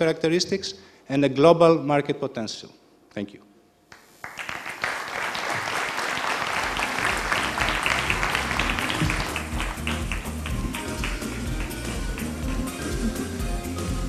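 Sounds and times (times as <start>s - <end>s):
audience applauding: 4.0s - 13.3s
music with low beat: 7.2s - 14.0s.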